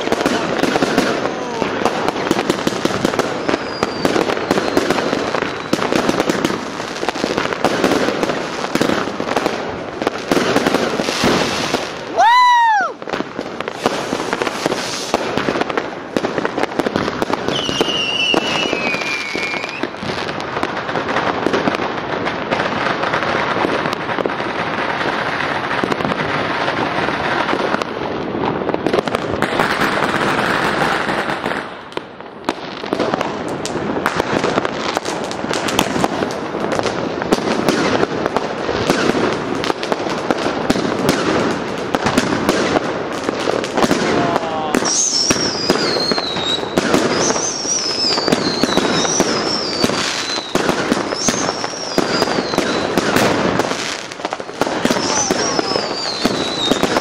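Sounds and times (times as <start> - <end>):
fireworks crackling and banging: 0.0 - 57.0
firework whistle gliding down: 3.0 - 6.0, 12.0 - 13.1, 17.4 - 20.0, 44.7 - 53.3, 54.9 - 57.0.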